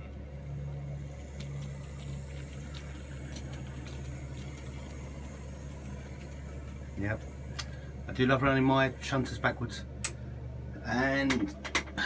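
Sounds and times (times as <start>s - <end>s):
electric motor hum: 0.0s - 12.0s.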